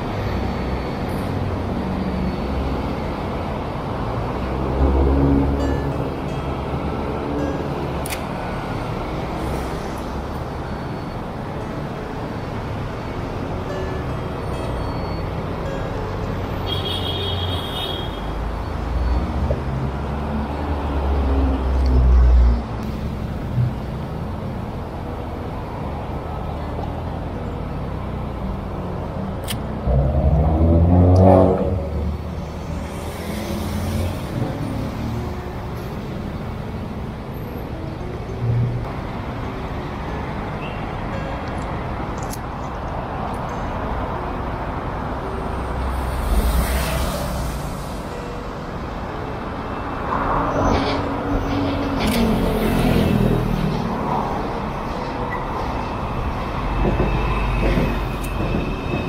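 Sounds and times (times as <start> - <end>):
steady traffic rumble: 0.0 - 59.0
vehicles passing: 0.0 - 59.0
vehicle engine accelerating past: 29.9 - 32.2, 45.8 - 48.0.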